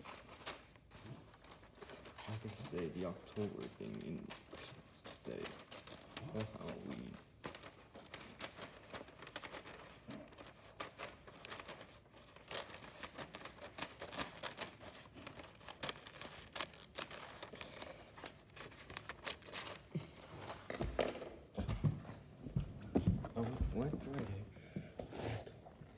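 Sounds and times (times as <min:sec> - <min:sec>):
wrapping paper rustling: 0:00.0 - 0:21.2, 0:23.4 - 0:24.5.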